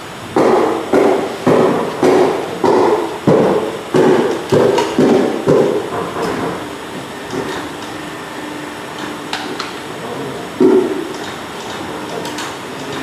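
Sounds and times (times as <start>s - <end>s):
machine humming: 0.0s - 13.0s
crimping machine knocks: 0.4s - 7.7s.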